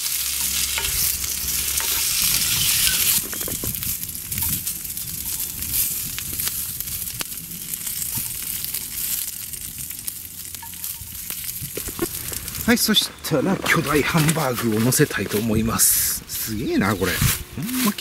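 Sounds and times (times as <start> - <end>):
vegetables sizzling in oil: 0.0 - 18.0
chopsticks clicking against pan: 0.4 - 1.2.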